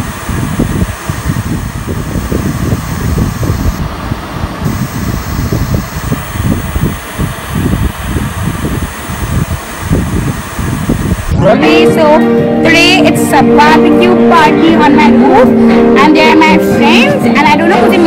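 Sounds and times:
tv static hiss: 0.0 - 11.5.

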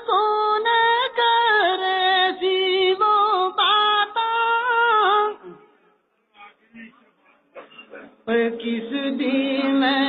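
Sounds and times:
woman singing unaccompanied: 0.0 - 5.6, 8.2 - 10.0.

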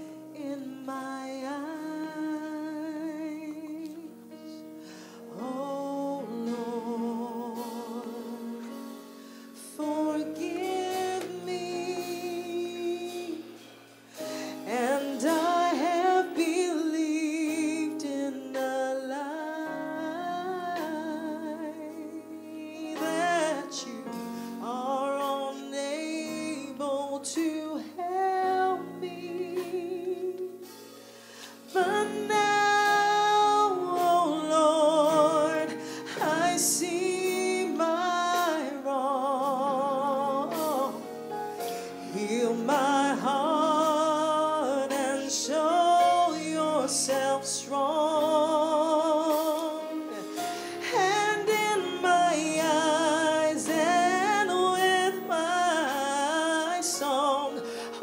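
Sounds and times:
woman singing: 0.0 - 4.7, 5.3 - 8.9, 9.6 - 13.6, 14.2 - 30.7, 31.7 - 41.2, 42.0 - 58.0.

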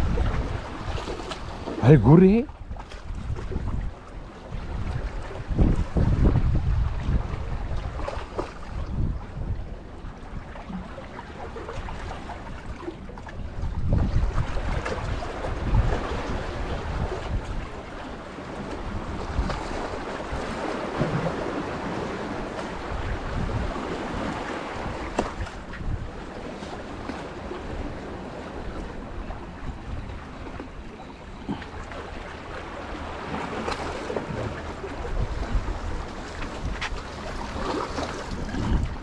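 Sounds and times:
sea washing against concrete: 0.0 - 3.9, 13.8 - 39.0
wind rumbling on microphone: 0.0 - 39.0
small water splashes: 36.0 - 39.0.

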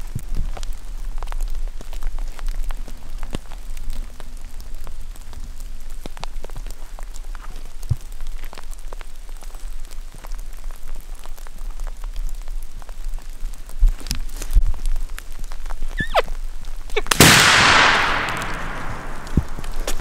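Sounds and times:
rain pattering on leaves: 0.0 - 20.0
low steady rumble: 17.1 - 20.0.

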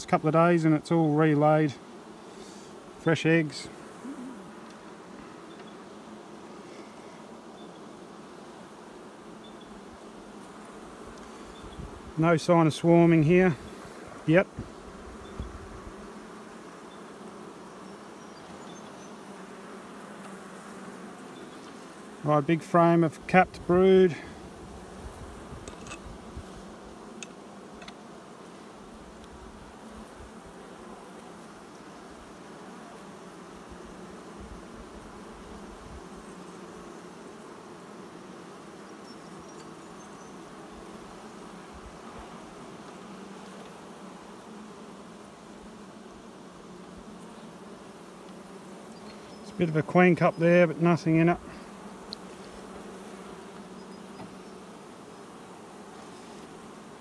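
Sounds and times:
bees buzzing: 0.0 - 57.0.

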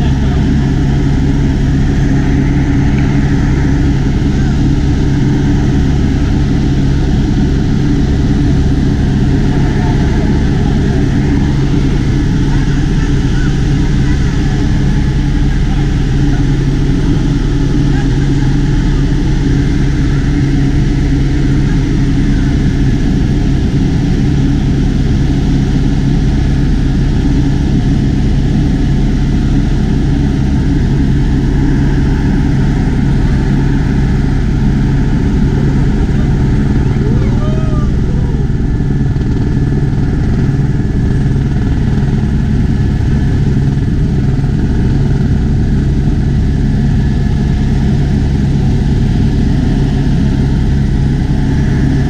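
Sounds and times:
helicopter engine and rotor drone: 0.0 - 52.0.

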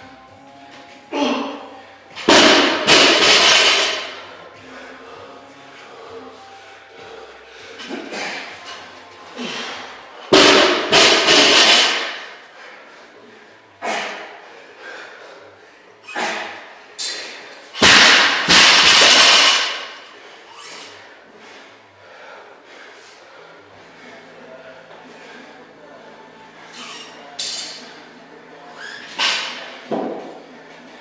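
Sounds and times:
barbells crashing on concrete: 2.2 - 4.2, 10.3 - 12.3, 17.7 - 20.0.

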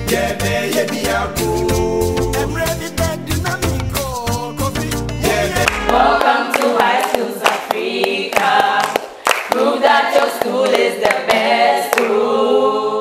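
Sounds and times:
group of voices singing: 0.0 - 13.0
hand claps: 5.6 - 12.2.

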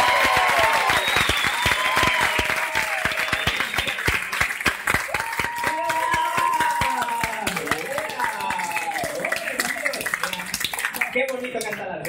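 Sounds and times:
voices whooping: 0.0 - 3.4, 5.1 - 10.1
audience applauding: 0.0 - 12.0.

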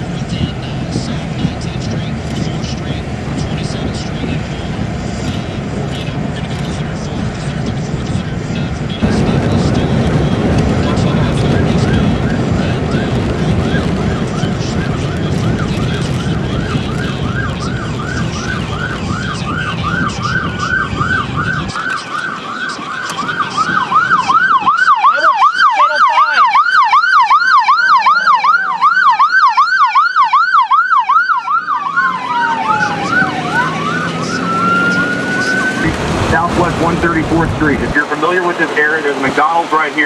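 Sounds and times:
low rumble: 0.0 - 21.7, 35.8 - 38.1
emergency siren yelping and wailing: 0.0 - 40.0.

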